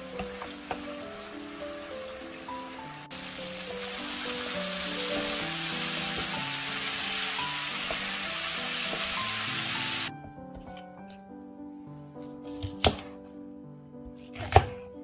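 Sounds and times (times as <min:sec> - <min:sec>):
meat sizzling in a frying pan: 0:00.0 - 0:10.1.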